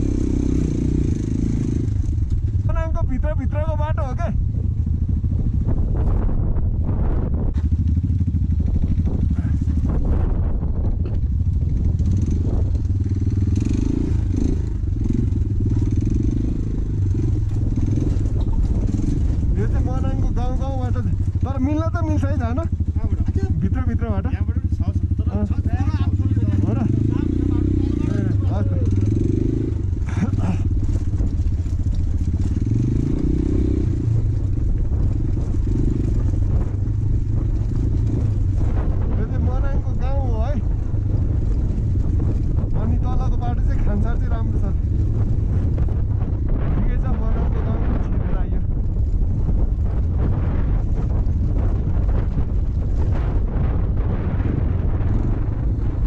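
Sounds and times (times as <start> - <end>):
motorcycle engine running: 0.0 - 56.0
bike knocking and rattling: 7.5 - 27.7, 28.4 - 47.5.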